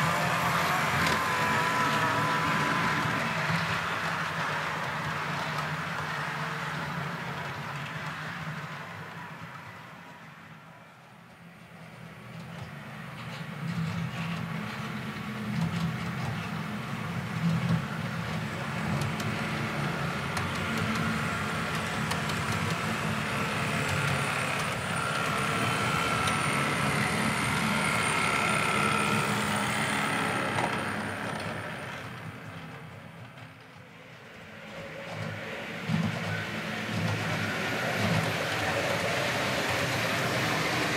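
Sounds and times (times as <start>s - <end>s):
model train wheels rumbling: 0.0s - 10.3s, 11.0s - 40.9s
faint motor whine: 17.4s - 40.9s
electric motor whirr: 21.3s - 31.9s.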